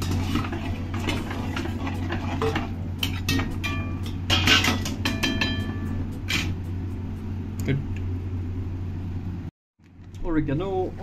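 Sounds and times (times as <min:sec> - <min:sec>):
metal spatula scraping pan: 0:00.0 - 0:06.6
steady low hum: 0:00.0 - 0:11.0.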